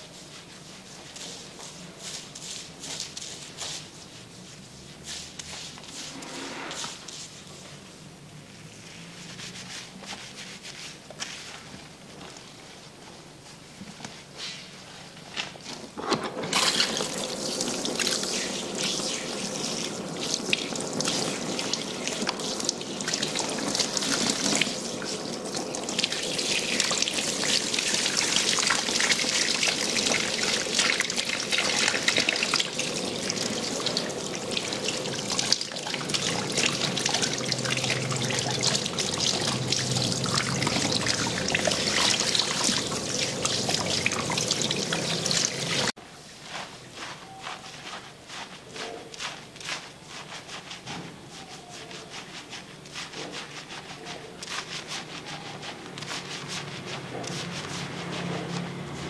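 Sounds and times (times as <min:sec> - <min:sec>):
shower head spraying water: 0:16.5 - 0:45.9.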